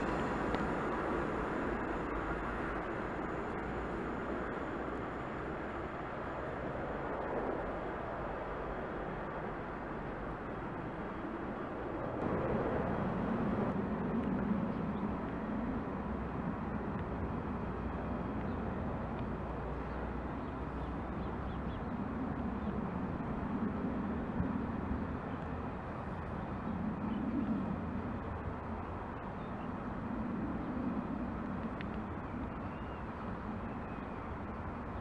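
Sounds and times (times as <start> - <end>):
distant electric train rumble: 0.0 - 35.0.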